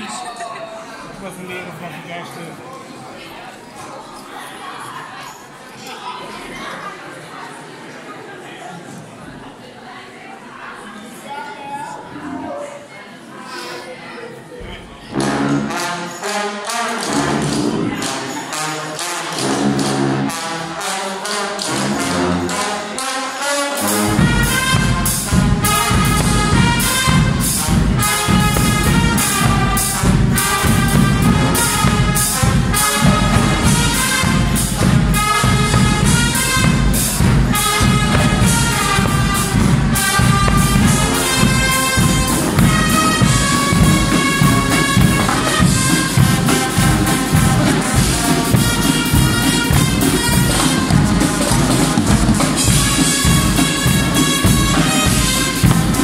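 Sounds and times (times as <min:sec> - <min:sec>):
trumpets and trombones: 0:15.0 - 0:56.0
marching bass drums pounding: 0:23.9 - 0:56.0.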